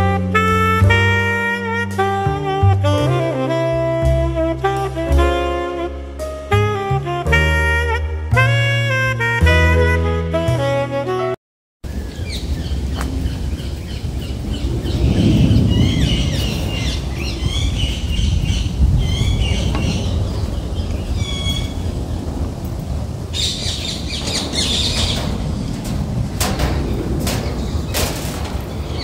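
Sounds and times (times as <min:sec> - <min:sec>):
songbirds chirping: 0:11.8 - 0:29.0
steady low rumble: 0:11.9 - 0:29.0.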